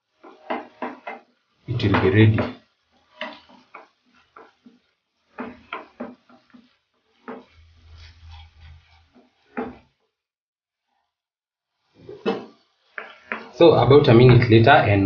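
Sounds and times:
wooden spoon stirring sauce in pan: 0.0s - 10.1s, 11.9s - 13.7s.

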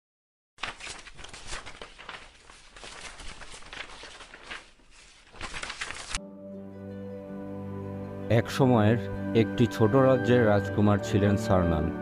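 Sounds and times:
paper pages rustling and flipping: 0.6s - 6.2s.

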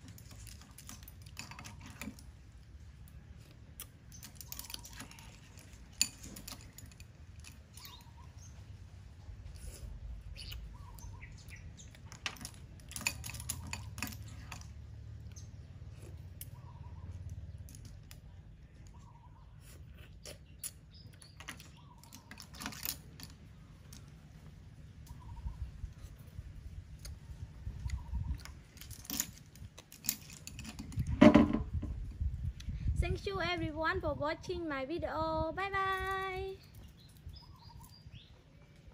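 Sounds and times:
bird calling: 10.3s - 12.0s, 18.8s - 22.6s, 25.1s - 26.2s.

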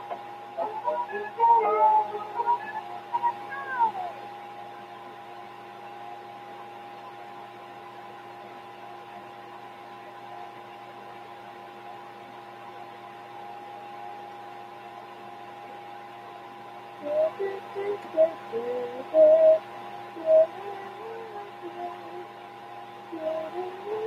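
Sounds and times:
electrical hum: 0.0s - 24.0s
person speaking: 0.6s - 4.2s.

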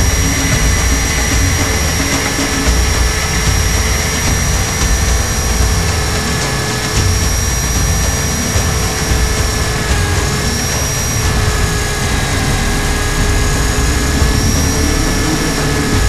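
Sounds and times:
high motor whine: 0.0s - 16.0s
low rotor rumble: 0.0s - 16.0s.

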